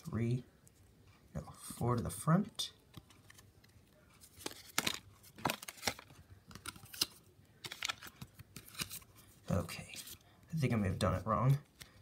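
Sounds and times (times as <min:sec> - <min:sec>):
trading cards rustling: 0:02.0 - 0:10.6.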